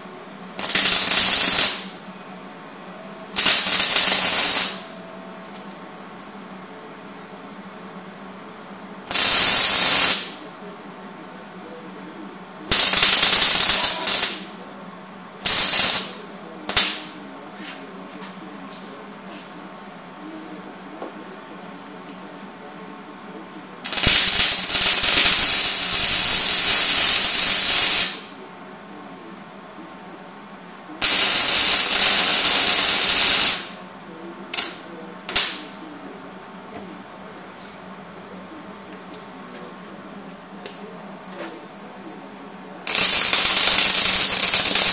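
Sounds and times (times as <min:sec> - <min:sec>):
arc welding crackle: 0:00.5 - 0:02.0, 0:03.3 - 0:05.0, 0:09.1 - 0:10.4, 0:12.7 - 0:14.6, 0:15.4 - 0:17.2, 0:23.8 - 0:28.4, 0:31.0 - 0:33.9, 0:34.5 - 0:35.8, 0:42.9 - 0:44.9.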